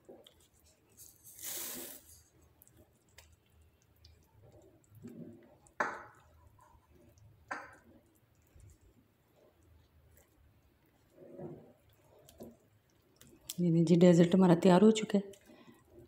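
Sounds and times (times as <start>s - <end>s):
pudding stirred with wet squelches: 0.0s - 16.0s
sugar hissing into pan: 1.0s - 2.3s.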